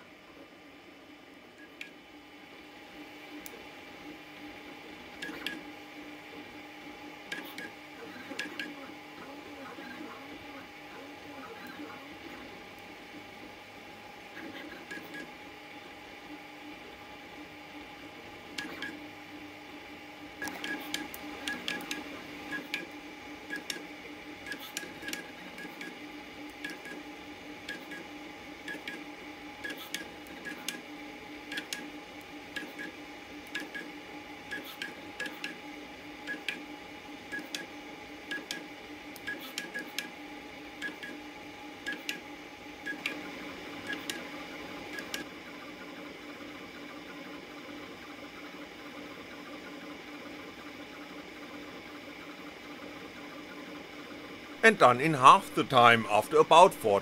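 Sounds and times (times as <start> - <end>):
printer mechanical hum: 0.0 - 57.0.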